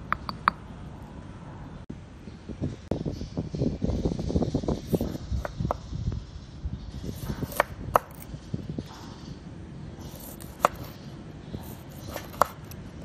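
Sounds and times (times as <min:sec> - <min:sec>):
knife cutting on wooden board: 0:07.2 - 0:08.2, 0:10.0 - 0:11.0, 0:11.6 - 0:12.8.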